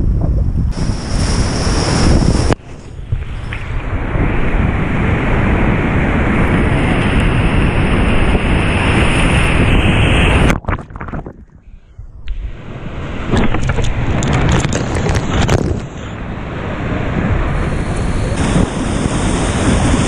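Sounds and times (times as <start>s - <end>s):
muffled underwater rumble: 0.0s - 20.0s
waves crashing over kayak: 0.8s - 10.9s, 12.4s - 20.0s.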